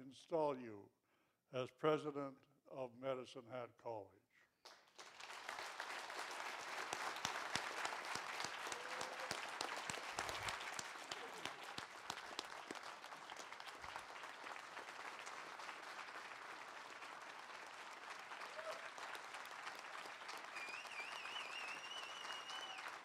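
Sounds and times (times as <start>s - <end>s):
audience applause: 4.7s - 23.0s.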